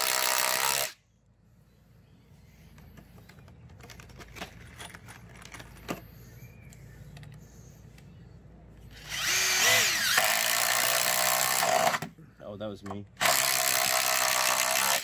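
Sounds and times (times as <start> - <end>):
light clicks and handling: 2.6 - 8.1.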